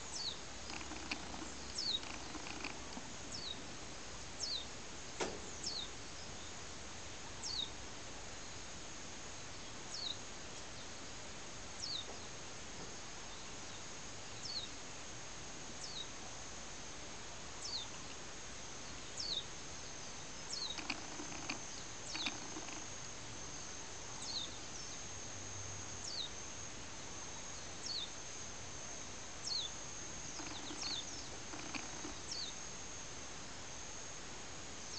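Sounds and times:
falling high insect chirp: 0:00.0 - 0:03.6, 0:19.2 - 0:33.8
insects droning: 0:00.0 - 0:07.9, 0:13.0 - 0:34.9.

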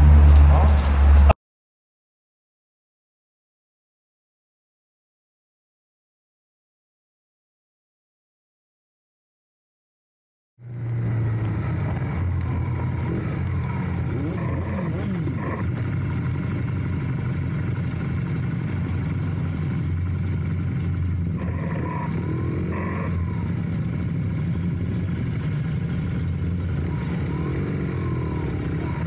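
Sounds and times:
motorcycle engines low drone: 0:00.0 - 0:01.4, 0:10.6 - 0:29.0.

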